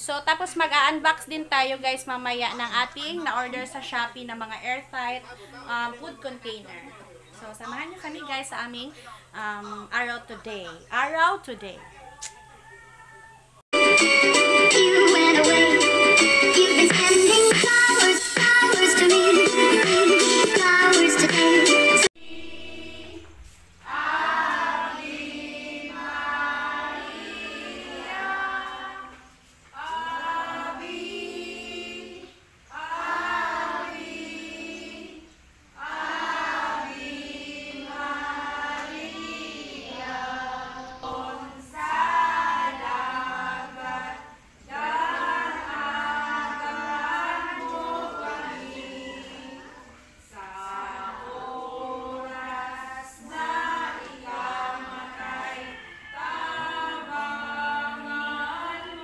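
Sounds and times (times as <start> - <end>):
children and women singing a hymn: 14.0 - 59.0.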